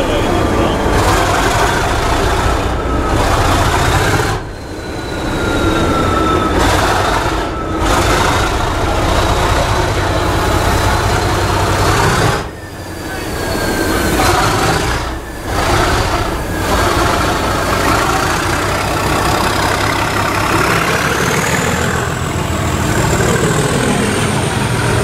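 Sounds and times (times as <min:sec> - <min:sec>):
diesel locomotive engine working hard: 0:00.0 - 0:25.0
train running noise: 0:00.0 - 0:25.0
thin high whistle: 0:02.2 - 0:09.6, 0:10.2 - 0:22.2.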